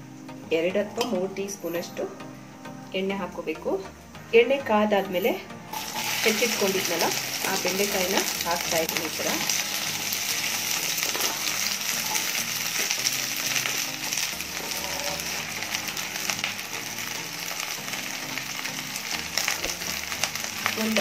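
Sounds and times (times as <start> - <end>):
okra sizzling in hot oil: 4.6 - 21.0.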